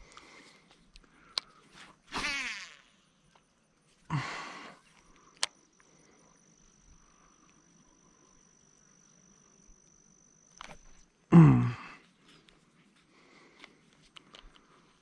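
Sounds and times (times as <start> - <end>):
cricket trill: 0.0 - 13.0
low grunt-like call: 11.3 - 12.0.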